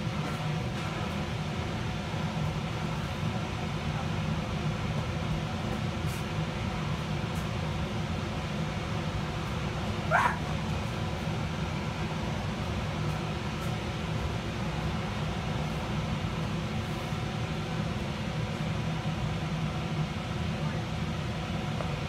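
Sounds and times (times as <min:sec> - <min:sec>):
short high yelp: 0:10.1 - 0:10.5.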